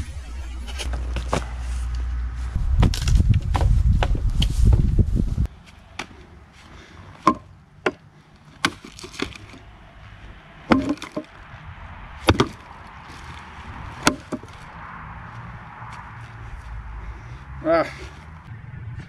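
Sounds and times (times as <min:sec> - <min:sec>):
machete chopping wood: 0:07.2 - 0:08.0, 0:08.6 - 0:09.6, 0:10.7 - 0:11.3, 0:12.2 - 0:12.6, 0:14.0 - 0:14.5.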